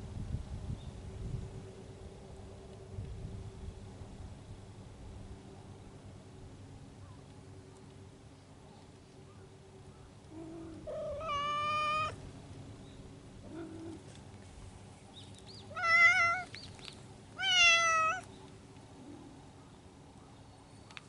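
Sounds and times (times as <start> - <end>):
cats yowling: 10.4 - 12.2, 15.7 - 16.5, 17.4 - 18.3
short low cat calls: 10.8 - 12.2.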